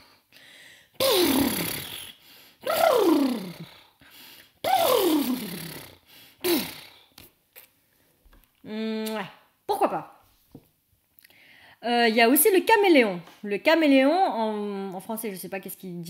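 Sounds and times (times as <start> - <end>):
woman imitating horse whinny: 1.0 - 3.8, 4.6 - 6.9.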